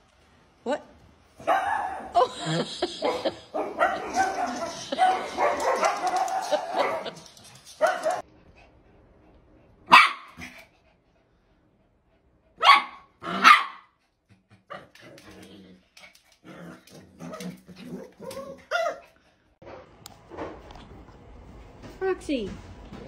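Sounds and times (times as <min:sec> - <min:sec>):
small dogs barking: 0:01.4 - 0:08.2, 0:09.9 - 0:10.5, 0:12.6 - 0:14.0
dogs growling and snarling: 0:02.2 - 0:07.4, 0:13.2 - 0:13.5, 0:14.3 - 0:18.9.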